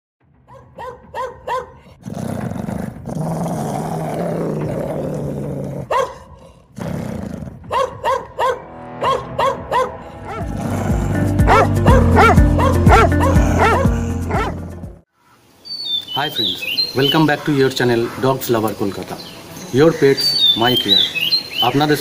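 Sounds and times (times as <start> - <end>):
dog barking: 0.5 - 1.9, 5.9 - 6.5, 7.6 - 10.5, 11.4 - 14.6
dog growling: 1.7 - 8.0, 10.1 - 14.8.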